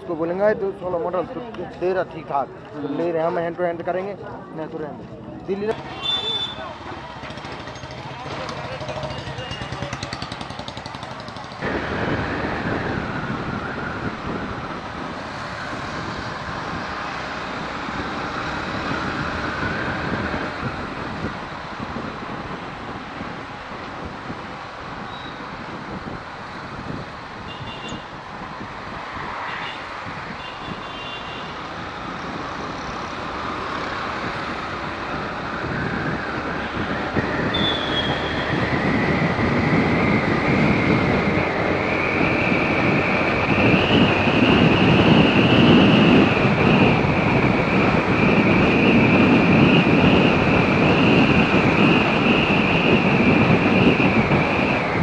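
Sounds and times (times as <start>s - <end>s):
road noise: 0.0s - 55.0s
motorcycle engine: 5.8s - 12.9s.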